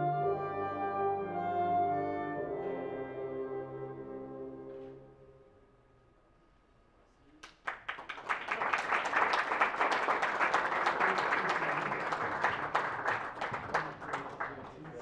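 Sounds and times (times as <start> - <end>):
audience applauding: 7.4 - 15.0.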